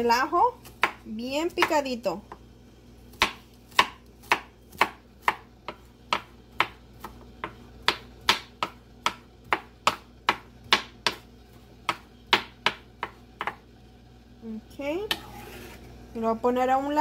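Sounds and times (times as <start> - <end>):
knife chopping on wooden board: 0.6 - 1.0, 3.1 - 13.6.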